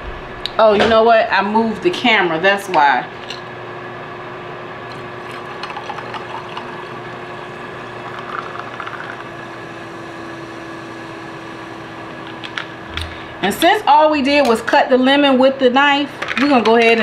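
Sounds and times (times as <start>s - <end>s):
steady hum: 0.0s - 17.0s
water pouring into glass over ice: 5.2s - 9.4s.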